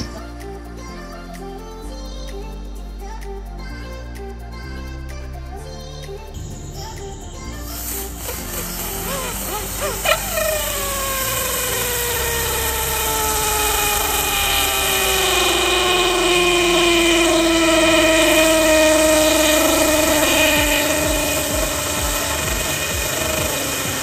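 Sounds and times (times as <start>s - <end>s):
motor whine sliding down: 8.2s - 24.0s.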